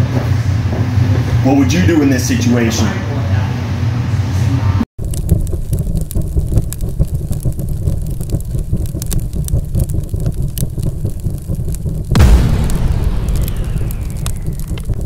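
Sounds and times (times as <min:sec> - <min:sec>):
deep rumble: 0:03.1 - 0:15.0
crackling spark-like clicks: 0:05.0 - 0:15.0.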